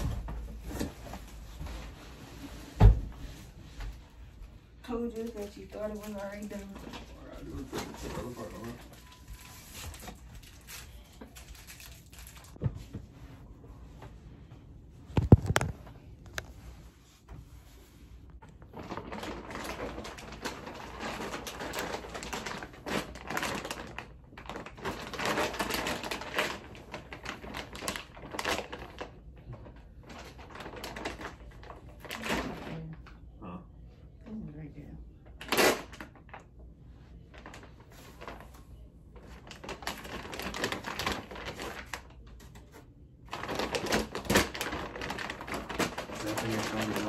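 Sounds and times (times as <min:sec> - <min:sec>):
plastic packaging crinkling: 0:05.1 - 0:12.7, 0:15.2 - 0:16.5, 0:18.7 - 0:32.8, 0:39.2 - 0:47.0.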